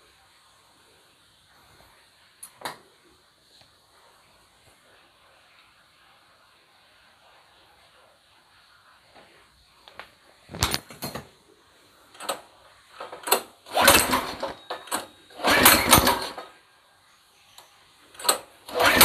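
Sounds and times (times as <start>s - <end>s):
recoil starter pulls on an engine: 13.0s - 16.5s, 18.2s - 19.0s.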